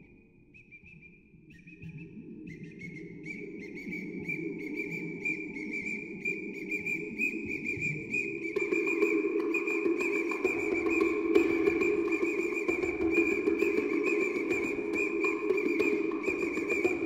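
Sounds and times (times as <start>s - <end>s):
whistle with fluttering warble: 0.0s - 17.0s.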